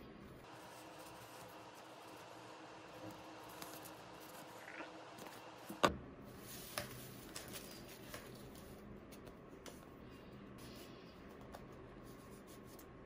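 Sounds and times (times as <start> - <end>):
paper rustling: 3.0 - 4.6, 6.4 - 9.8.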